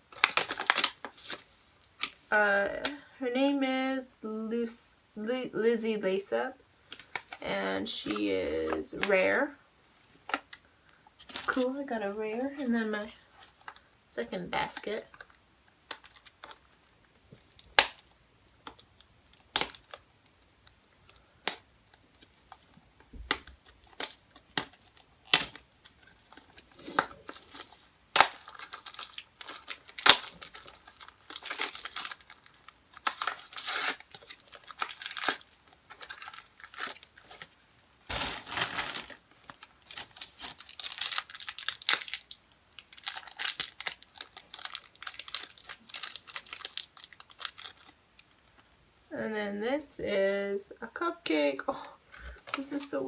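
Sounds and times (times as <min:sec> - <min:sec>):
wrapper crinkling and tearing: 0:00.0 - 0:02.2, 0:14.7 - 0:48.6
plastic packaging clicks and snaps: 0:00.1 - 0:02.2, 0:15.1 - 0:20.0, 0:20.6 - 0:48.6.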